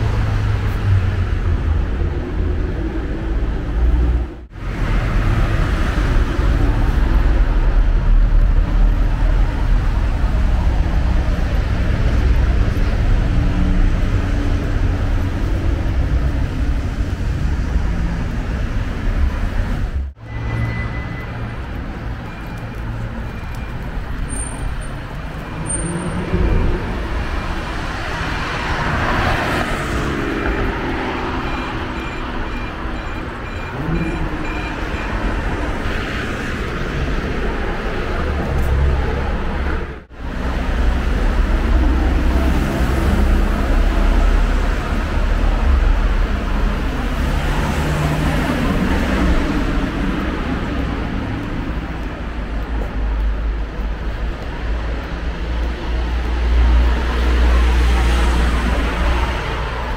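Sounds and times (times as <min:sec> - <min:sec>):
cars passing: 0:00.0 - 0:59.9
faint high beep: 0:20.2 - 0:21.5, 0:31.4 - 0:35.3.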